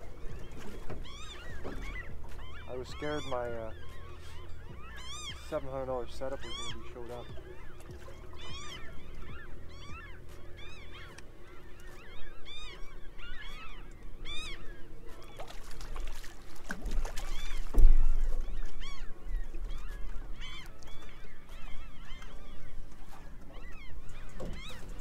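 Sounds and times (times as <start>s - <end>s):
water birds calling: 0.0s - 25.0s
wind rumbling on microphone: 16.0s - 25.0s.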